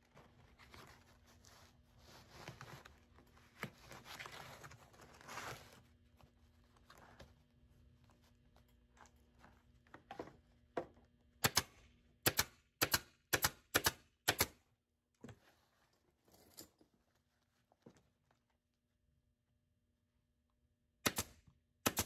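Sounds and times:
staple gun shots: 11.4 - 14.6, 21.0 - 22.0.

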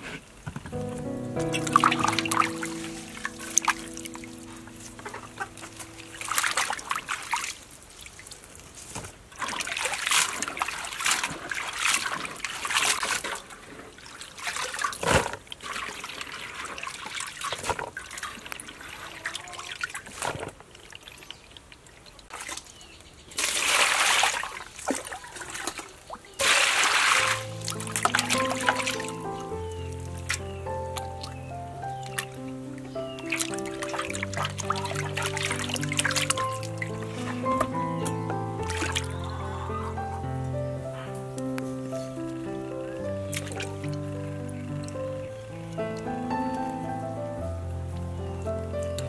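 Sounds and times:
water trickling: 0.8 - 8.7, 9.3 - 40.5
water sloshing in a basin: 5.0 - 30.4, 33.1 - 37.8, 38.6 - 39.4.

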